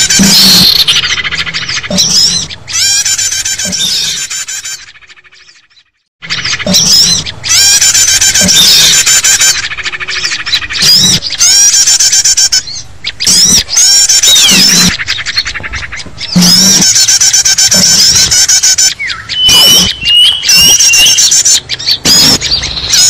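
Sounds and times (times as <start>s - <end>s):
chorus of small songbirds: 3.7s - 11.5s, 12.6s - 23.0s.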